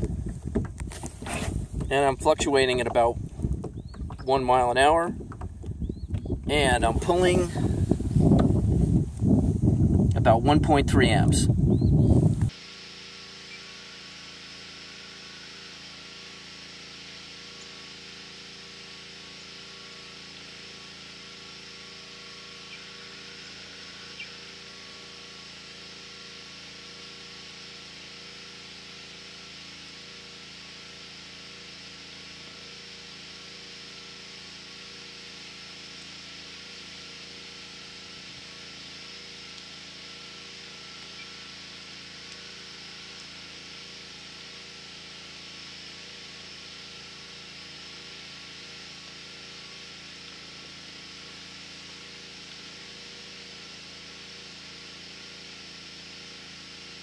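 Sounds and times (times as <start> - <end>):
low hum of held tones: 0.0 - 57.0
even hiss: 6.5 - 28.8.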